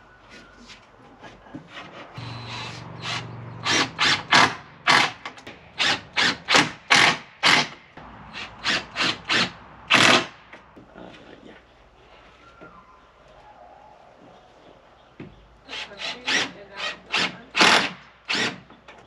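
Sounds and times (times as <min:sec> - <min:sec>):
power tool bursts into wood: 0:02.2 - 0:07.8, 0:08.4 - 0:10.4, 0:17.2 - 0:18.6.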